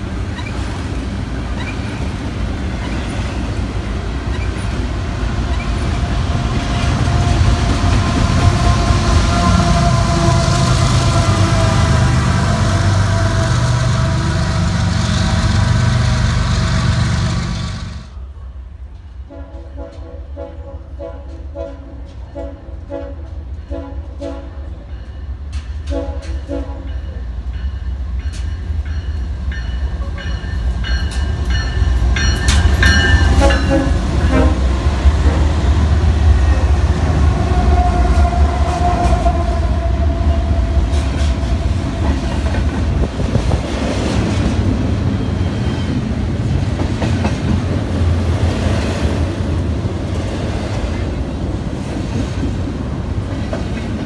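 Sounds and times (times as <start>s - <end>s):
diesel locomotives rumbling: 0.0s - 54.0s
freight cars clattering on rails: 28.2s - 34.4s.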